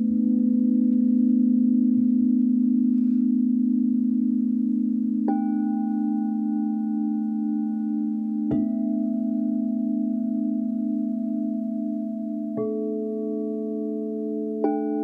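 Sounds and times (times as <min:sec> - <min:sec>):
singing bowl drone: 0:00.0 - 0:15.0
singing bowl struck with mallet: 0:05.2 - 0:10.6, 0:11.2 - 0:15.0.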